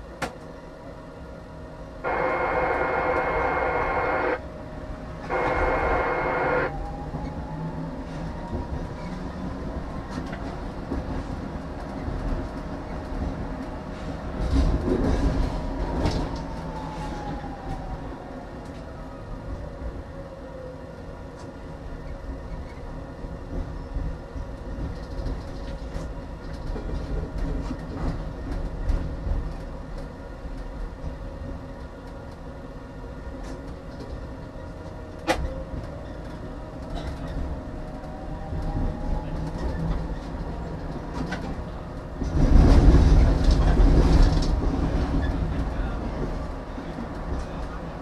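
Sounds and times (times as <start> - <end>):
tram wheels rumbling on rails: 0.0 - 48.0
faint rising whine: 2.0 - 4.4, 5.3 - 6.8
loud rumbling rush: 2.0 - 4.4, 5.3 - 6.8.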